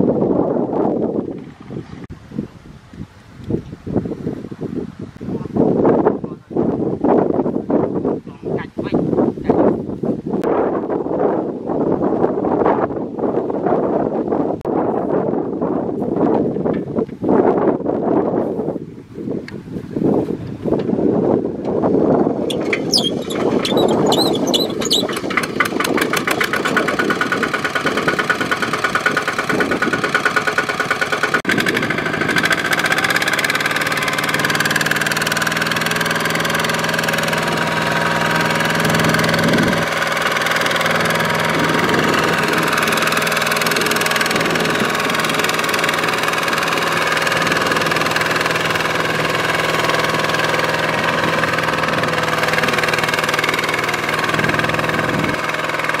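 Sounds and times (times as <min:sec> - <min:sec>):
diesel engine starting up: 0:22.4 - 0:56.0.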